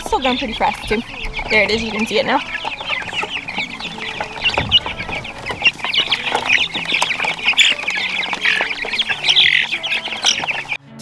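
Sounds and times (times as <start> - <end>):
chicks peeping and cheeping: 0.0 - 10.8.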